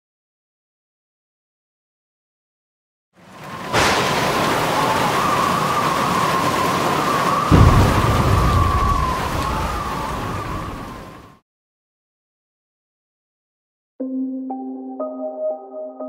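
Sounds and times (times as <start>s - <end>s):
rain hiss: 3.2s - 11.4s
deep thunder rumble: 3.7s - 11.4s.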